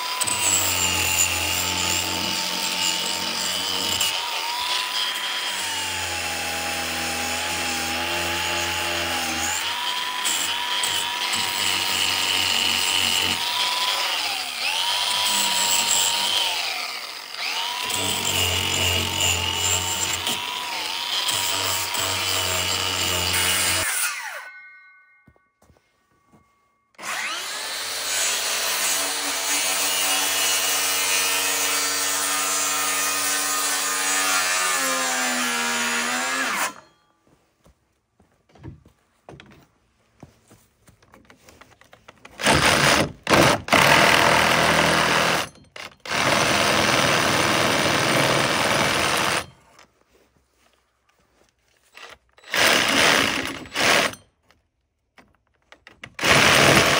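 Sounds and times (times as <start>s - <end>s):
power tool working wood: 0.0s - 24.4s, 27.0s - 36.8s, 42.4s - 45.5s, 46.1s - 49.4s, 52.5s - 54.1s, 56.2s - 56.9s.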